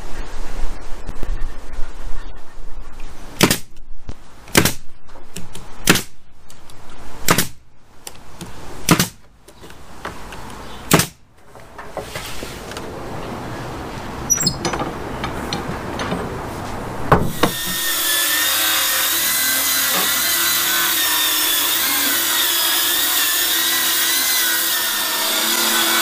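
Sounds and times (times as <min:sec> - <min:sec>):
nail gun firing: 0:03.4 - 0:03.7, 0:04.5 - 0:04.8, 0:05.8 - 0:06.1, 0:07.3 - 0:07.6, 0:08.9 - 0:09.2, 0:10.9 - 0:11.2.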